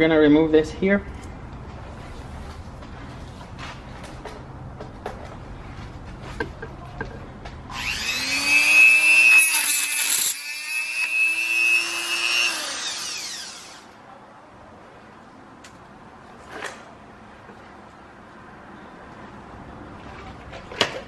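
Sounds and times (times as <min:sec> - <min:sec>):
electric power tool running: 0:07.7 - 0:14.0.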